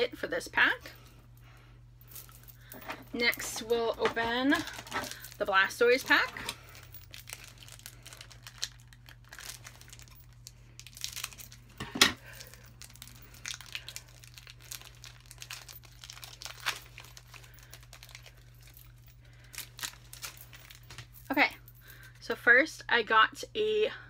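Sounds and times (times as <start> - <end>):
foil wrapper crinkling and tearing: 4.5 - 21.1.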